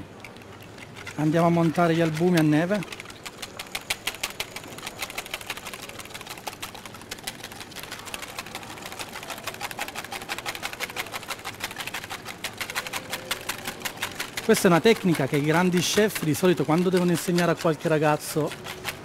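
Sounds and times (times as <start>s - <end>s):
whisk beating in bowl: 3.5s - 19.0s.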